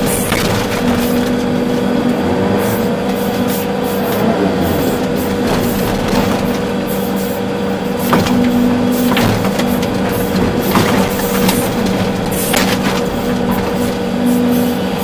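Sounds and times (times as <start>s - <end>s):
excavator diesel engine under load: 0.0s - 15.0s
hydraulic whine: 0.0s - 15.0s
short knocks: 4.9s - 14.6s.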